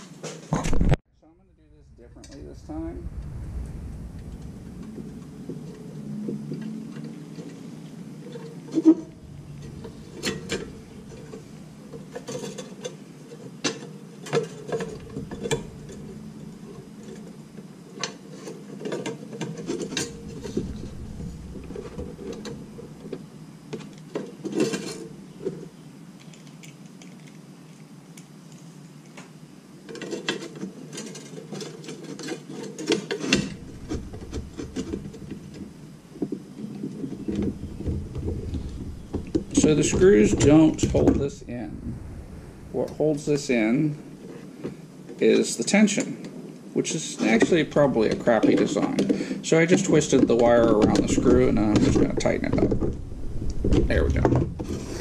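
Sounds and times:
steady low hum: 0.6 - 29.9, 32.8 - 55.0.

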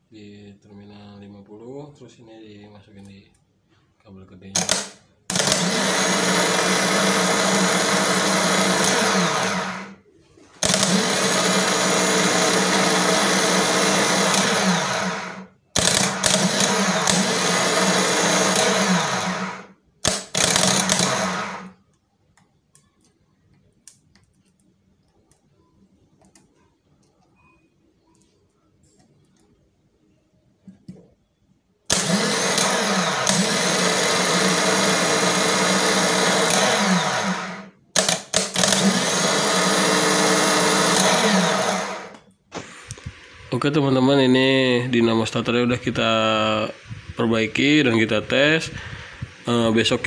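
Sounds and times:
starter motor spinning: 4.6 - 10.0, 10.6 - 21.7, 31.9 - 43.7, 45.4 - 50.0.

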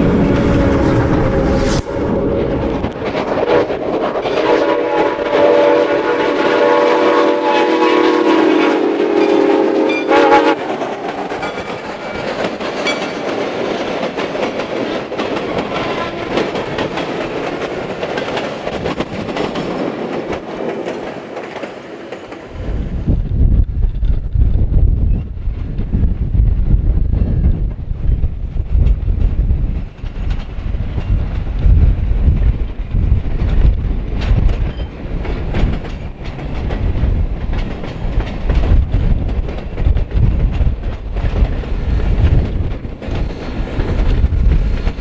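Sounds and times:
train wheels clicking over rail joints: 2.3 - 5.3, 10.0 - 22.6, 23.2 - 45.0
steam locomotive whistle: 3.4 - 10.6.

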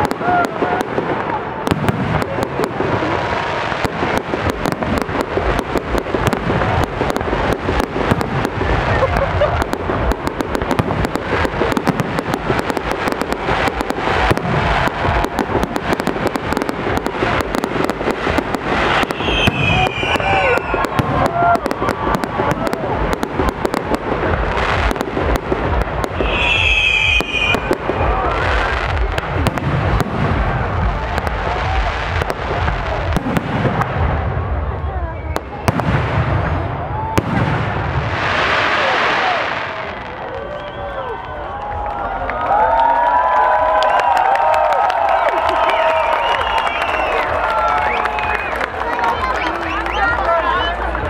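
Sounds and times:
fireworks bangs: 0.0 - 41.8
fireworks crackle: 0.0 - 51.0
high firework whistle: 18.8 - 22.9, 26.1 - 28.8, 38.4 - 41.3, 45.5 - 48.6.

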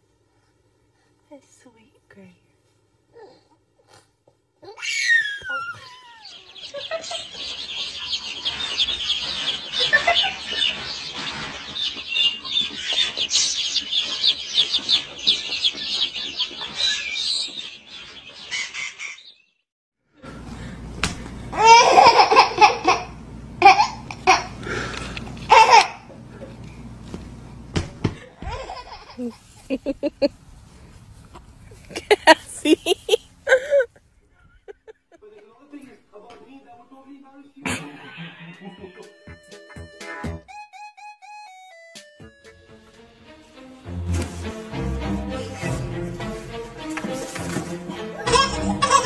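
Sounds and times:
baby laughing: 4.6 - 7.4, 21.5 - 24.6, 25.5 - 26.1, 28.2 - 30.3, 31.9 - 33.9, 47.9 - 49.0
baby chicks peeping: 5.5 - 19.5.

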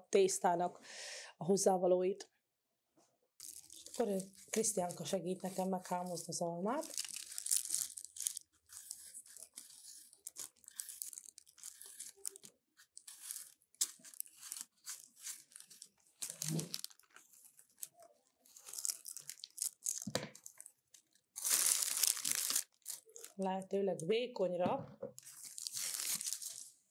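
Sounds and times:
knife scraping apple peel: 8.2 - 17.4.

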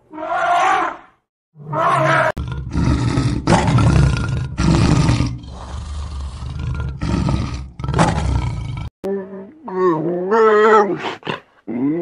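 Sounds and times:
lion roaring: 1.7 - 8.9.

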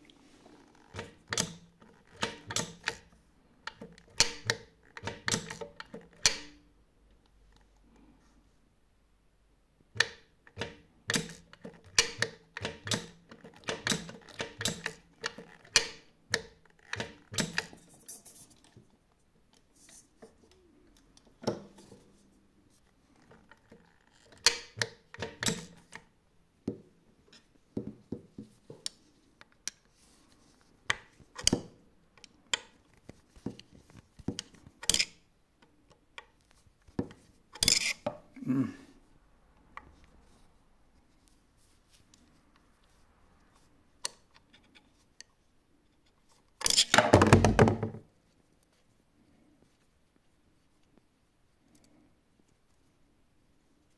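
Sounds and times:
sewing machine mechanism clicking: 0.8 - 6.6, 10.0 - 17.8, 23.5 - 26.0.

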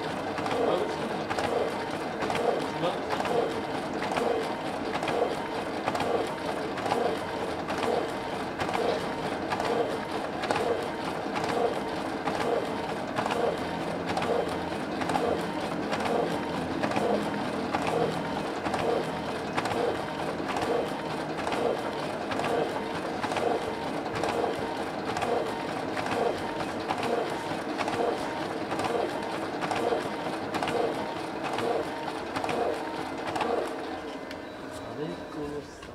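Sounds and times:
photocopier feeding sheets: 0.2 - 35.5.

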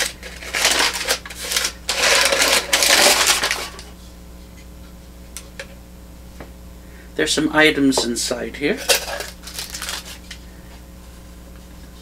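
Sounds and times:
paper crinkling and rustling: 0.0 - 3.9, 8.8 - 10.4.

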